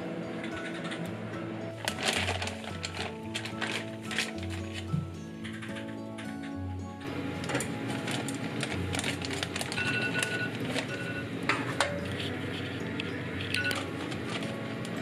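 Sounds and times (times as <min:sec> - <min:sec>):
rice cooker beeping: 0:09.4 - 0:12.2, 0:13.1 - 0:14.4.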